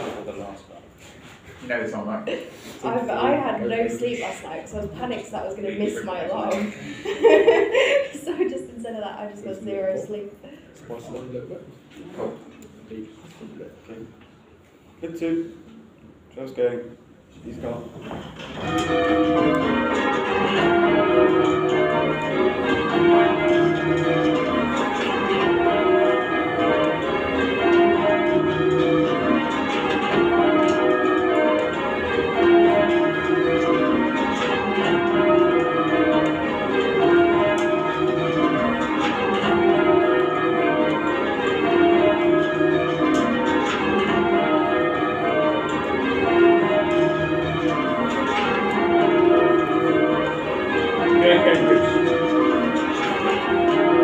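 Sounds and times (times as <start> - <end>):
church bells change ringing: 2.8 - 10.3, 18.3 - 54.0.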